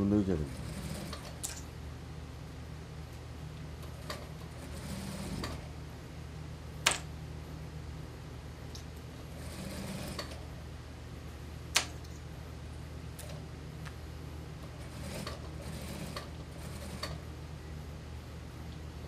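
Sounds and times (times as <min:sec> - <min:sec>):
sewing machine motor hum: 0:00.0 - 0:01.4, 0:03.8 - 0:05.7, 0:09.2 - 0:10.5, 0:14.6 - 0:17.3.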